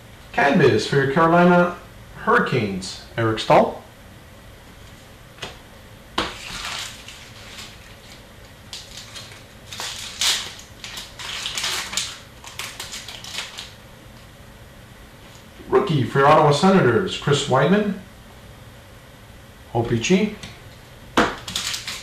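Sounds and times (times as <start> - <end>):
card pack wrapper rustling and crinkling: 6.2 - 13.8, 21.4 - 22.0.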